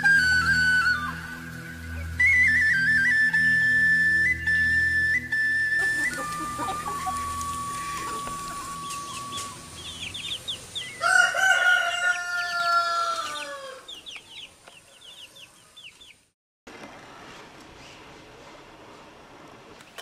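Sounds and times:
chickens peeping: 5.8s - 16.2s
rooster crowing: 10.9s - 14.0s.

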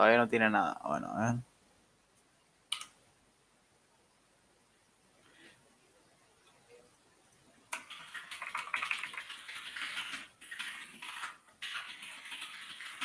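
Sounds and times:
typing on computer keyboard: 2.7s - 3.0s, 7.7s - 13.0s.

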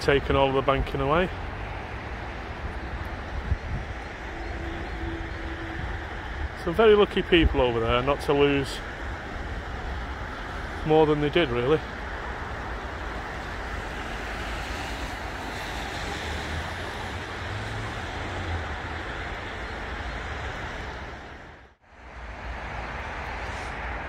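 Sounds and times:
wind rumble on microphone: 0.0s - 10.8s
rushing outdoor noise: 0.0s - 24.0s.

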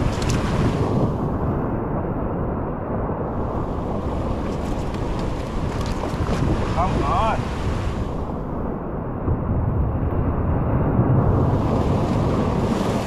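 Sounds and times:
ocean surf washing: 0.0s - 13.0s
wind buffeting microphone: 0.0s - 13.0s.

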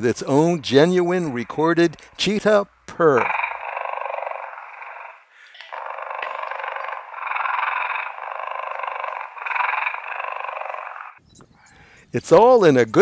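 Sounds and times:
toy cheetah purr: 3.0s - 11.2s.

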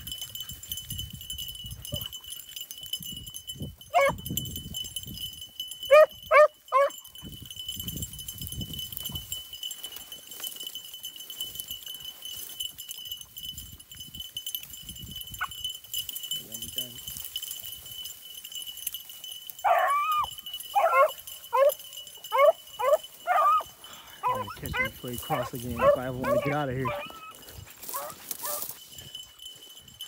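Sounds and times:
dogs yelping: 3.9s - 4.2s, 5.9s - 7.0s, 19.6s - 28.7s
dogs rustling through dry grass: 3.9s - 30.0s.

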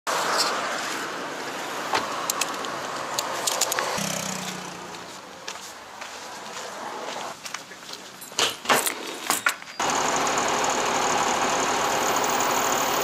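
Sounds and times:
sharp clicks: 2.2s - 4.6s
car driving past: 3.9s - 5.2s.

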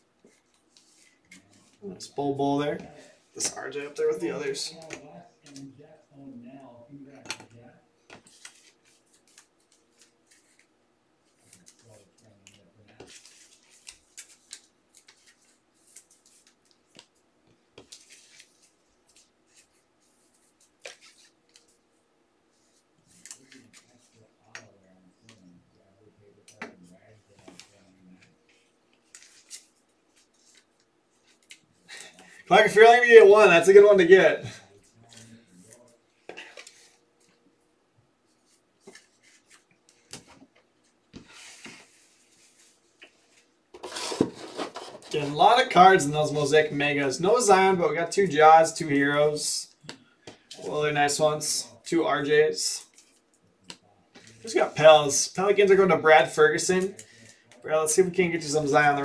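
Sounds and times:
cards and packaging rustling: 8.1s - 17.2s, 17.8s - 21.8s, 26.4s - 34.1s, 38.4s - 46.4s
cards sliding on tabletop: 41.2s - 45.4s.

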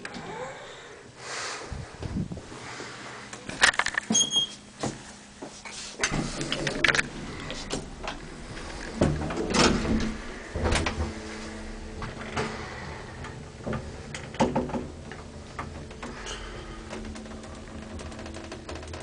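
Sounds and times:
elevator low hum: 0.0s - 19.0s
elevator clunks and knocks: 6.0s - 19.0s.

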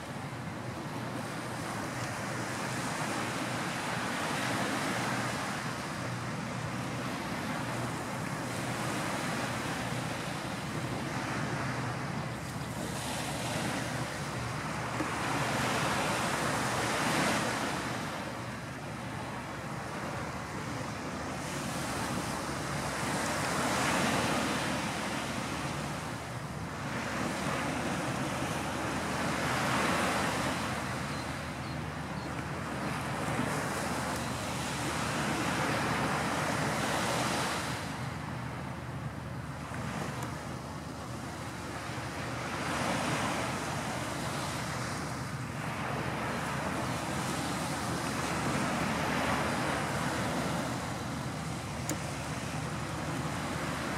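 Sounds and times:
surf washing ashore: 0.0s - 53.9s.

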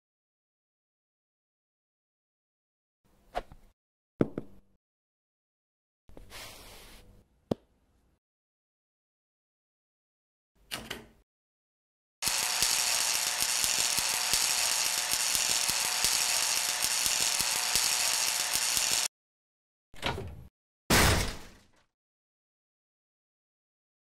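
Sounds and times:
laser crackling buzz: 12.2s - 19.1s.

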